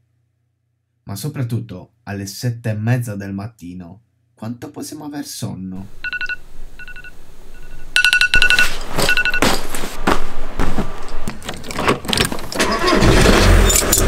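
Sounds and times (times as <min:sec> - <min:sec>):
phone alarm beeping: 0:05.9 - 0:09.6
car door unlocking and opening: 0:11.3 - 0:14.0
keys jangling: 0:13.6 - 0:14.0.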